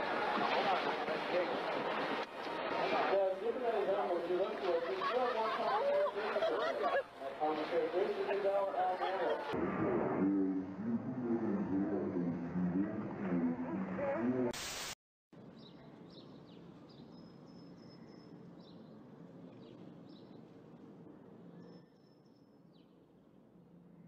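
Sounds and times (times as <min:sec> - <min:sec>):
steady outdoor hiss: 0:00.0 - 0:09.6, 0:14.6 - 0:24.0
people's voices: 0:00.0 - 0:14.5
loud burst of noise: 0:14.6 - 0:15.0
birds chirping: 0:15.4 - 0:23.2.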